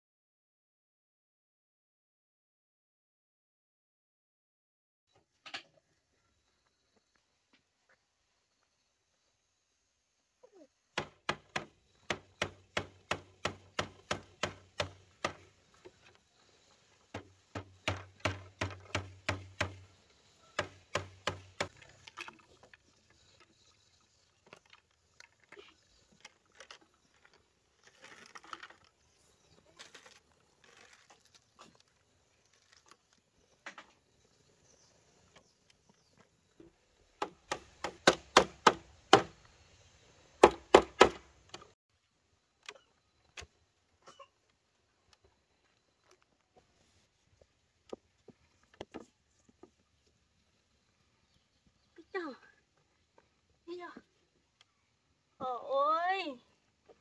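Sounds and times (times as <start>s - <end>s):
bamboo struck with a tool: 11.0s - 15.5s, 17.1s - 19.8s, 20.6s - 21.8s, 37.2s - 39.4s, 40.4s - 41.6s
rustling: 21.9s - 33.7s.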